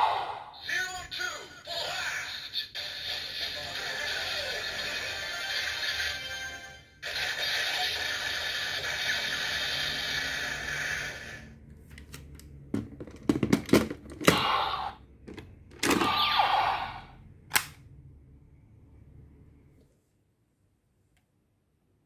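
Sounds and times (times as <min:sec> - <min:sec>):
plastic snap: 0:17.5 - 0:17.8.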